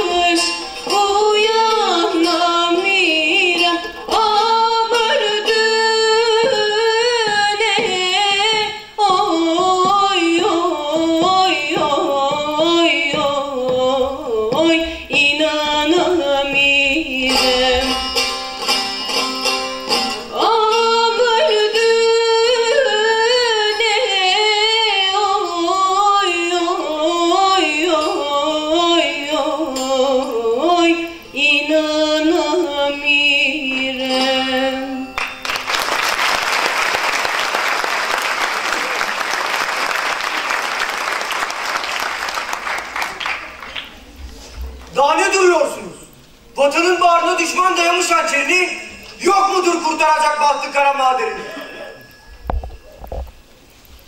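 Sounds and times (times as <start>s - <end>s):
woman singing folk song: 0.0s - 35.4s.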